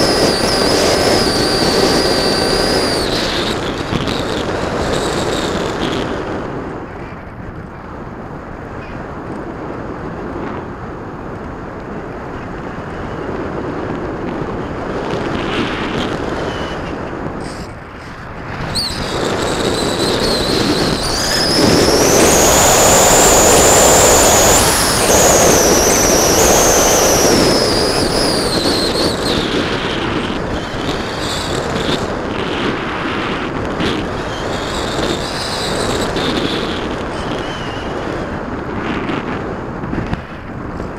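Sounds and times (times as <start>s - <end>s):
electric motor whine: 0.0s - 4.2s, 19.1s - 29.9s
wind rushing: 0.0s - 6.9s, 13.2s - 40.9s.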